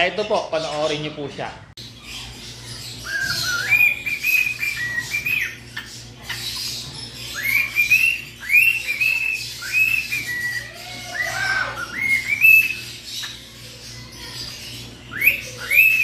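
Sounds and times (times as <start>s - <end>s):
cockatiel whistling a tune: 3.0s - 5.6s, 7.3s - 12.8s, 15.1s - 16.0s.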